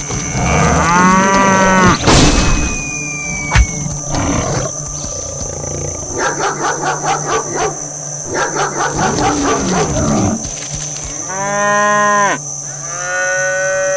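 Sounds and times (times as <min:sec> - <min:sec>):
high-pitched whine: 0:00.0 - 0:06.2
cow mooing: 0:00.1 - 0:02.0, 0:11.2 - 0:13.9
dog barking: 0:06.1 - 0:10.0.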